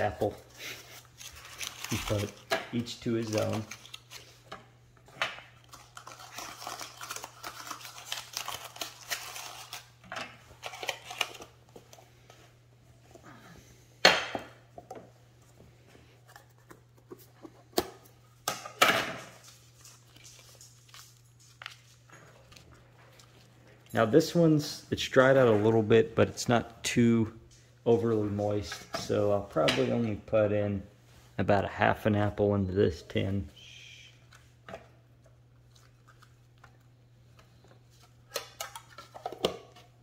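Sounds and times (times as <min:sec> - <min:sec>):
packaging crinkling: 0:00.1 - 0:04.4, 0:05.6 - 0:11.9, 0:19.4 - 0:23.5.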